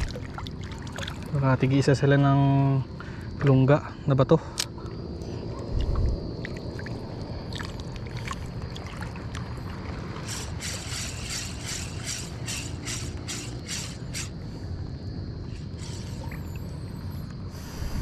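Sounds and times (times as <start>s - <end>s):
low wash of water: 5.5s - 10.2s
fishing reel ticking: 10.2s - 14.4s, 15.6s - 16.5s.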